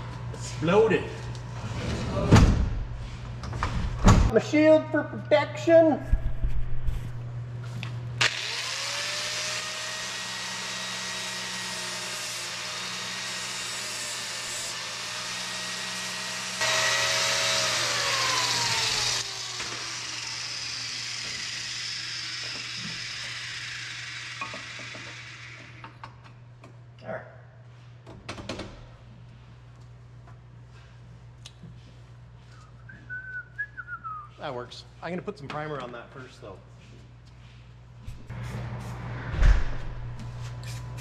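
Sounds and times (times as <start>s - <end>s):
angle grinder grinding metal: 8.2s - 25.8s.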